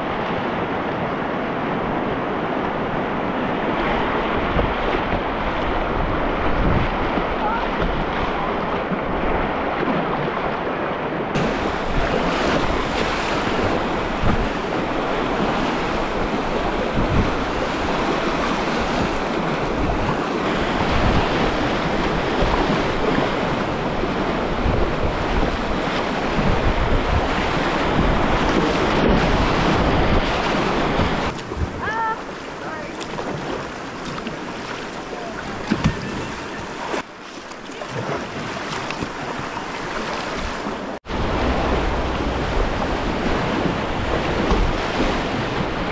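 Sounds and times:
wind buffeting microphone: 0:00.0 - 0:37.0, 0:37.7 - 0:45.9
whitewater rapids rushing: 0:00.0 - 0:45.9.

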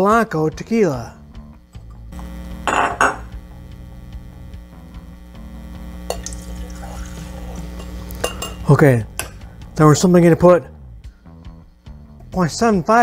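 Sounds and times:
steady low hum: 0:01.2 - 0:12.3
glass bottle clinking: 0:02.7 - 0:03.2, 0:06.1 - 0:09.4.

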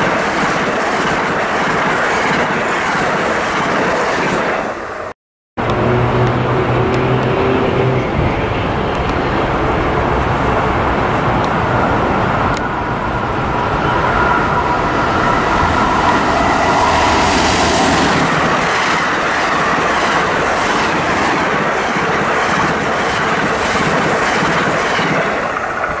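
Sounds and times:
wheels clickety-clack over rail joints: 0:00.0 - 0:16.8, 0:18.2 - 0:26.0
train coaches rushing by: 0:00.0 - 0:26.0
steady whine: 0:05.6 - 0:23.3.

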